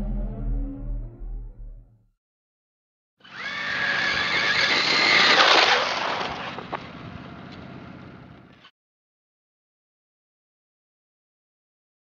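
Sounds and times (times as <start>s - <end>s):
radio-controlled car motor whine: 3.2s - 6.9s.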